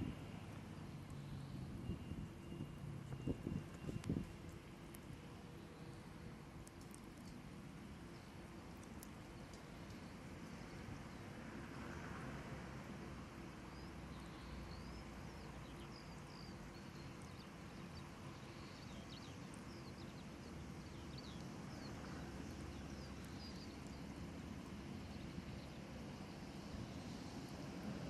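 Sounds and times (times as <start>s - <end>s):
small birds chirping: 13.8s - 25.9s.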